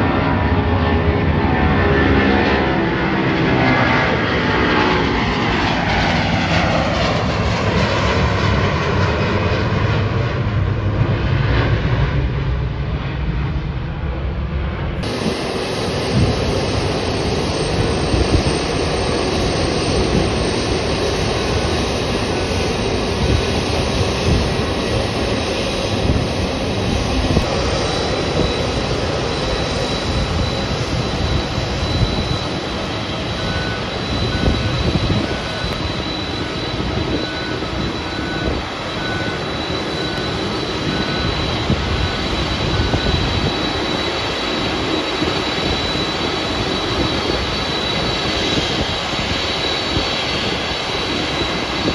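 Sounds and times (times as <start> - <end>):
high jet engine whine: 0.0 - 51.9
jet engines rumbling hiss: 15.0 - 51.9.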